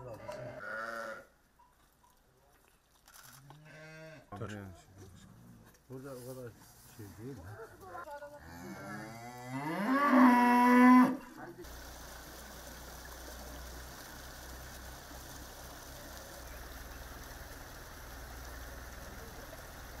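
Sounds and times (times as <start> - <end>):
cow mooing: 8.5 - 11.2
floodwater rushing: 11.6 - 20.0.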